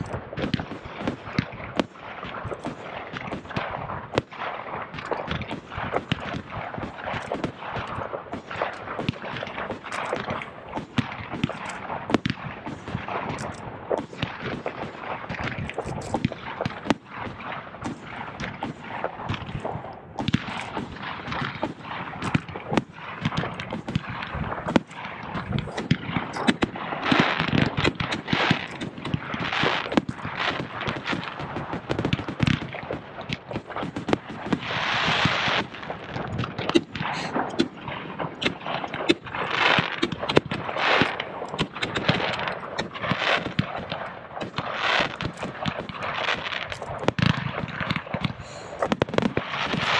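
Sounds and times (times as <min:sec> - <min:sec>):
fireworks bangs: 0:00.0 - 0:49.9.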